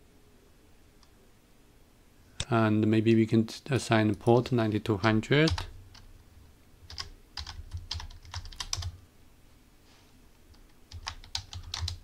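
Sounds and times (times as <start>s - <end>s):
keyboard typing: 5.0s - 6.1s, 6.9s - 9.0s, 10.5s - 12.0s.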